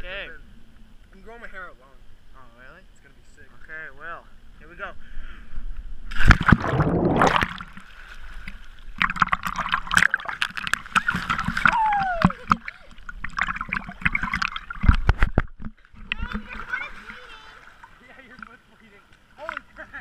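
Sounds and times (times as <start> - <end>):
person splashing into water: 6.1 - 8.0, 9.0 - 15.6
swimmer splashing at surface: 6.1 - 8.4
muffled underwater bubbling: 6.4 - 7.7.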